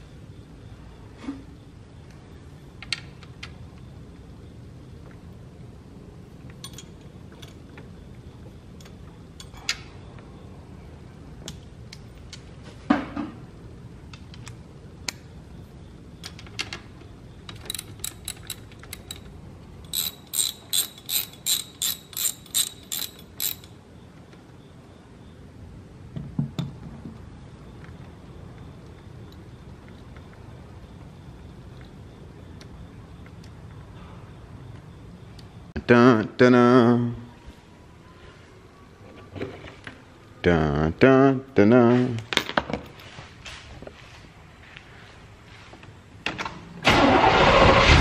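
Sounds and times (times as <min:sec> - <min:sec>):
ratchet wrench clicking: 0:17.5 - 0:23.8.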